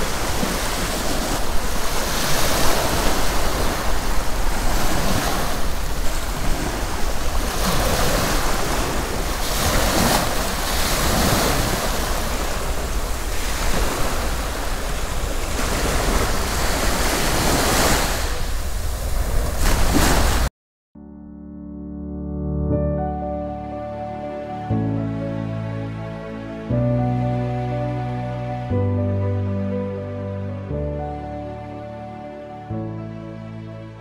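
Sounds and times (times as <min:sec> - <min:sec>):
sea waves breaking on shore: 0:00.0 - 0:20.5
wind rumbling on microphone: 0:00.0 - 0:20.5.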